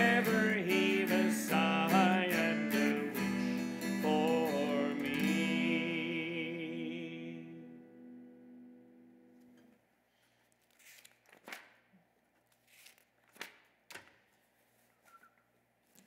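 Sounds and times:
acoustic guitar chord ringing: 0.0 - 9.4.

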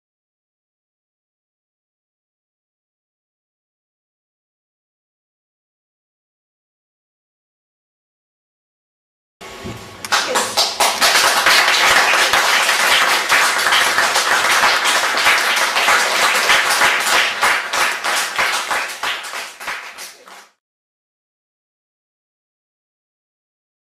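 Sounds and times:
audience applauding: 10.1 - 20.6.

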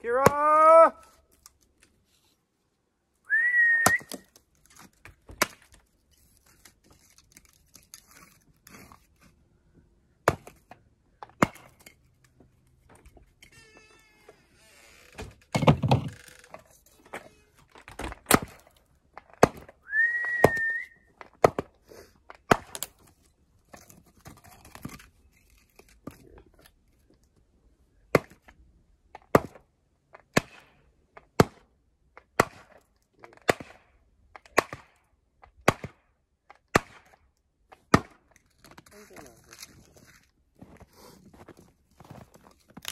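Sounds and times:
rising whistle: 3.3 - 4.1, 19.9 - 21.0
hatchet chopping wood: 10.2 - 11.9, 18.2 - 19.8, 20.4 - 21.8, 22.4 - 22.9, 28.1 - 28.5, 29.2 - 29.6, 30.3 - 32.8, 33.4 - 33.8, 34.5 - 36.0, 36.7 - 37.1, 37.8 - 38.2.

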